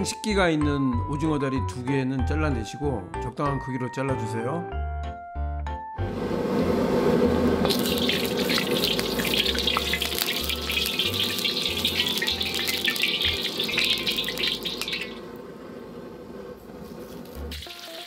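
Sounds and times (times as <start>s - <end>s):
oil sizzling in a wok: 7.6s - 15.5s, 16.1s - 18.0s.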